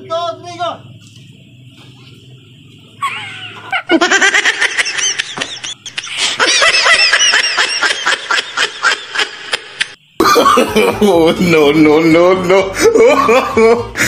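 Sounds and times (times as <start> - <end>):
people laughing: 3.0 - 14.0.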